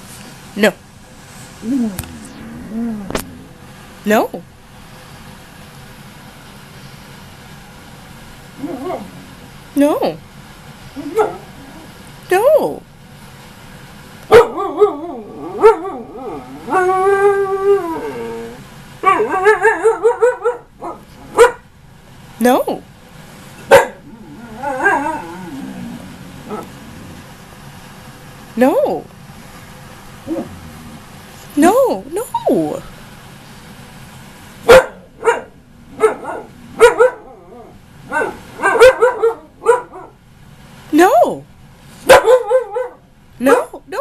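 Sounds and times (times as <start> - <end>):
dog howling and yelping: 8.6 - 9.5, 11.0 - 12.0, 14.3 - 21.5, 23.7 - 27.3, 30.2 - 31.1, 34.8 - 40.2, 42.2 - 43.6
husky yowling: 8.6 - 9.5, 11.0 - 12.0, 14.3 - 21.6, 23.7 - 27.3, 34.7 - 40.2, 42.1 - 43.7.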